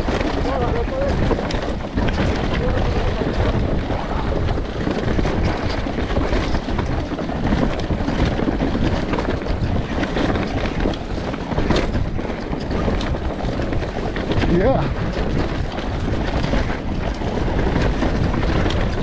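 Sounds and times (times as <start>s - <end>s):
motorcycle engine: 0.0s - 19.0s
wind buffeting microphone: 0.0s - 19.0s.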